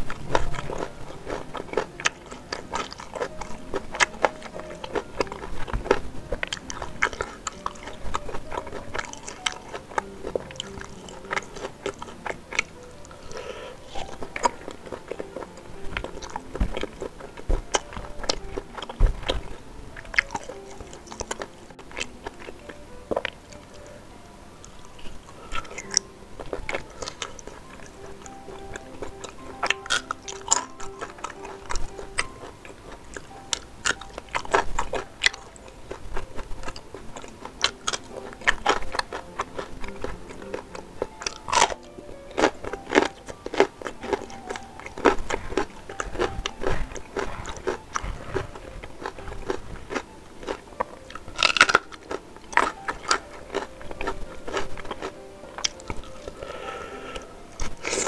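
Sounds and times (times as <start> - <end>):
crunching raw chilies: 0.0 - 23.8, 24.7 - 58.0
person chewing food: 0.0 - 24.0, 24.6 - 58.0.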